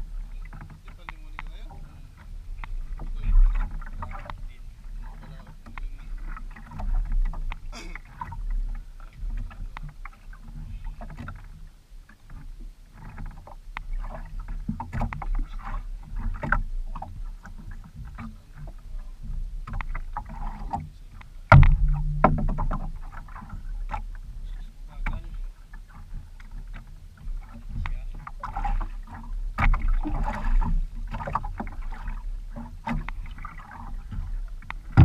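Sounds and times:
water sloshing against hull: 0.0s - 35.0s
knocks and clicks of fishing tackle: 0.5s - 1.7s, 5.3s - 8.3s, 11.0s - 11.5s, 14.5s - 15.5s, 16.2s - 24.2s, 25.0s - 33.4s
steady low rumble: 21.3s - 25.6s.

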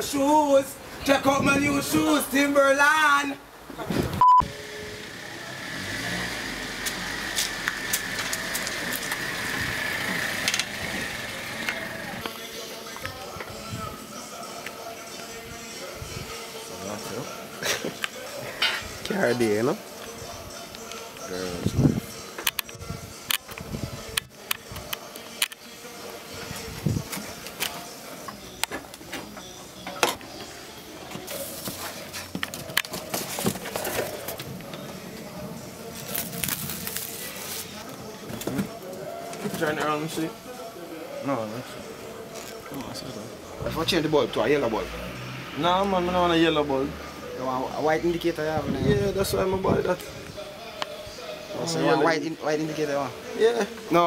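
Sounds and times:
loud single-tone bleep: 4.2s - 4.5s.

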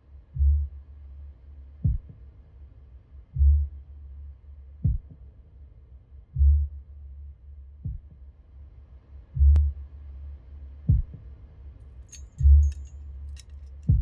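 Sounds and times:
heartbeat-like pulse: 1.8s - 2.2s, 4.8s - 5.2s, 6.4s - 6.8s, 7.8s - 8.2s, 9.4s - 9.8s, 10.9s - 11.2s
low hum: 12.1s - 14.0s.

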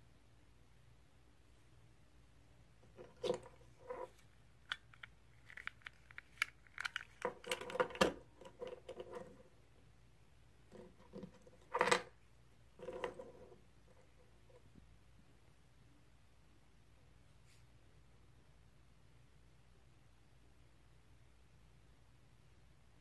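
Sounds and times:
plastic key fob clicks and rattles: 4.7s - 7.8s.

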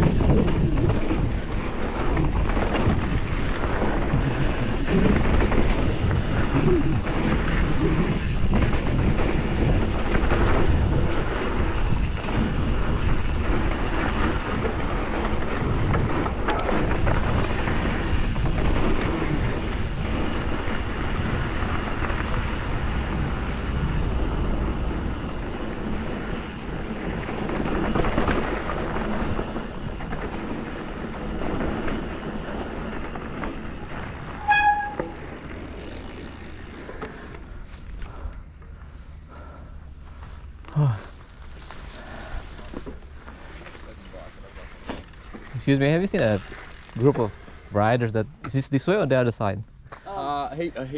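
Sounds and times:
wind buffeting microphone: 0.0s - 31.6s
bike tyre roar on dirt: 0.0s - 50.9s
brief high squeal: 34.3s - 35.3s.

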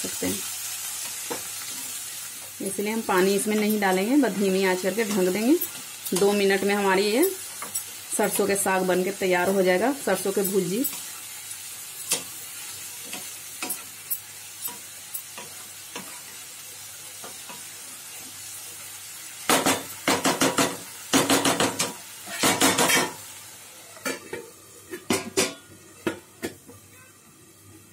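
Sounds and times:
greens sizzling in a pan: 0.0s - 27.9s
spatula tapping the pan: 19.5s - 23.1s.

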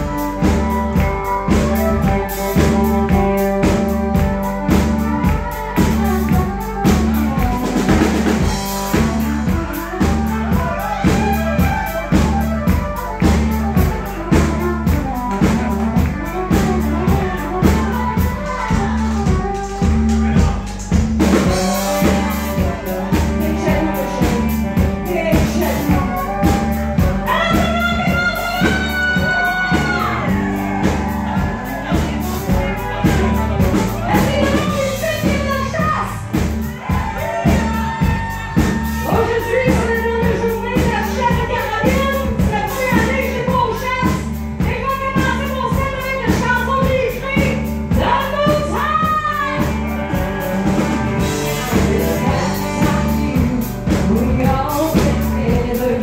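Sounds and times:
band with drums: 0.0s - 56.0s
woman singing country song: 21.5s - 31.0s, 31.6s - 36.4s, 37.4s - 50.3s, 51.2s - 56.0s.

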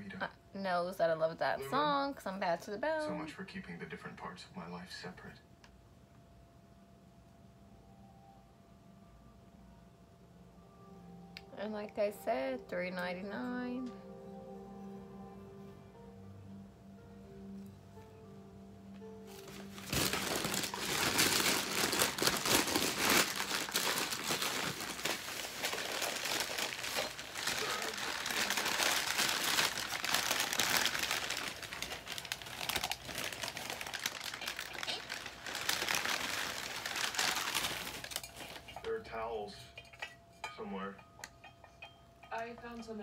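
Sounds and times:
plastic and paper crinkling: 19.3s - 38.8s.

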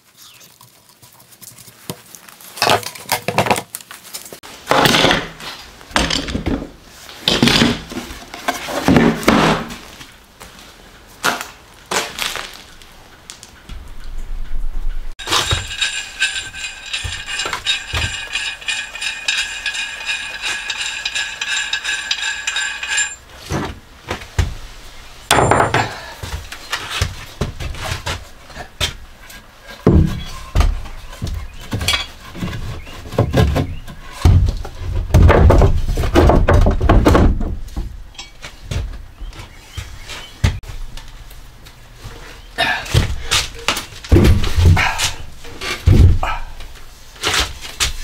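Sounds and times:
steel bars clinking and knocking: 15.2s - 23.3s, 25.3s - 26.0s, 38.1s - 38.4s
high ringing tone: 15.3s - 23.2s.

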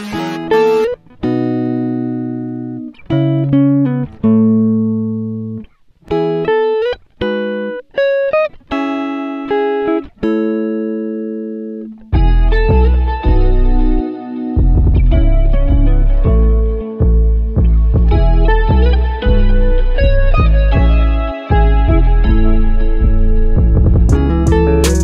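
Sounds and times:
guitar plucking notes and chords: 0.0s - 25.0s
deep bass: 12.2s - 14.0s, 14.6s - 25.0s.

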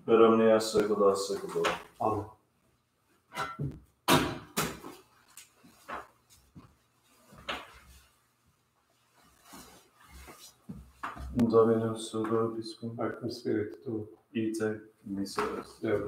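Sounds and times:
wooden knocks and thumps: 3.4s - 4.8s
shuffling: 4.9s - 12.5s.

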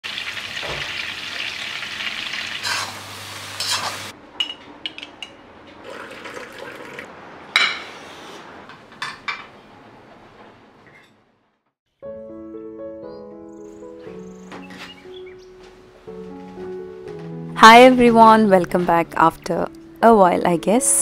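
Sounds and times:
chicken sizzling in hot oil: 0.0s - 4.1s.

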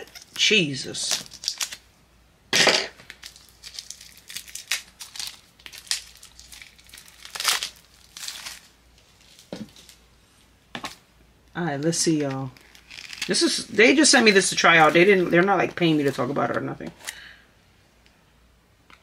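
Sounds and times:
packaging crinkling and rustling: 1.0s - 1.9s, 3.0s - 10.1s, 11.8s - 17.2s.

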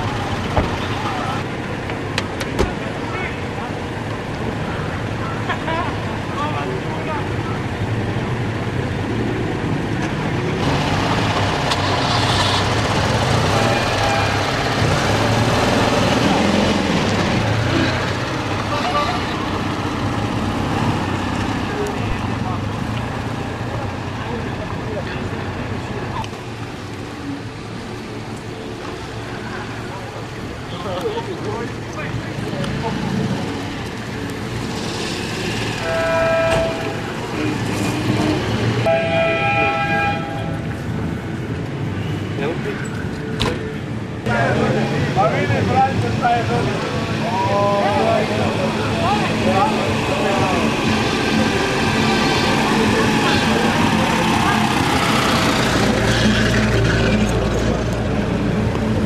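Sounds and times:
small cars driving slowly past: 0.0s - 59.0s
vehicle horn blasts: 35.8s - 37.6s, 38.8s - 40.6s.

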